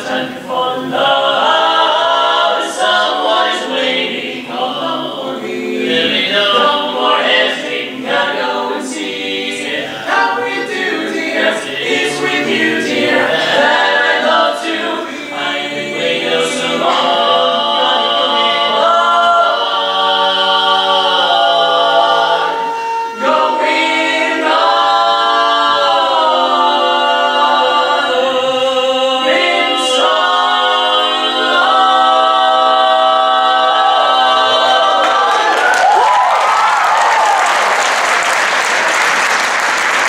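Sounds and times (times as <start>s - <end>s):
men singing a cappella harmony: 0.0s - 35.6s.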